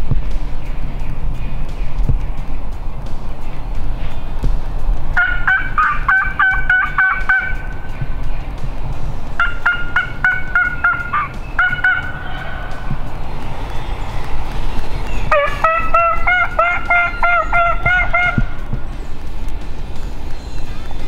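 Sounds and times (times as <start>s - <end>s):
turkey yelping: 5.2s - 7.8s, 9.4s - 13.1s, 15.1s - 18.6s.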